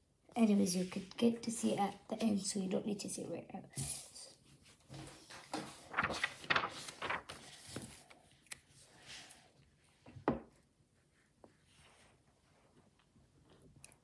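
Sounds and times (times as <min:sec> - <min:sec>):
paper rustling: 0:04.4 - 0:09.4.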